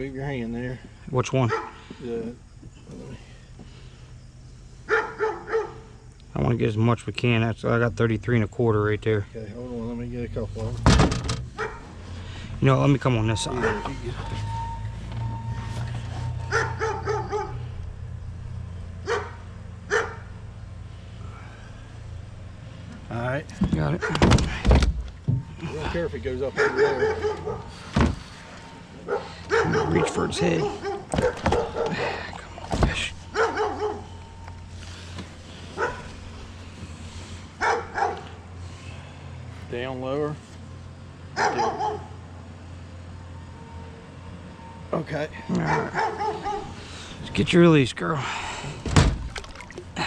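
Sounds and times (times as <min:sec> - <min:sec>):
dog yipping and barking: 0:01.5 - 0:01.8, 0:04.9 - 0:06.0, 0:11.6 - 0:11.9, 0:13.5 - 0:14.0, 0:16.4 - 0:17.7, 0:19.0 - 0:20.3, 0:26.5 - 0:27.7, 0:29.0 - 0:32.0, 0:33.3 - 0:34.2, 0:35.8 - 0:36.1, 0:37.6 - 0:38.3, 0:41.4 - 0:42.2, 0:45.6 - 0:46.8.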